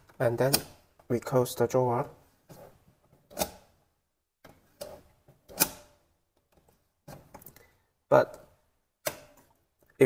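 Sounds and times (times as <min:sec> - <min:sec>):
drawer slide metal clicks: 0:04.8 - 0:06.0.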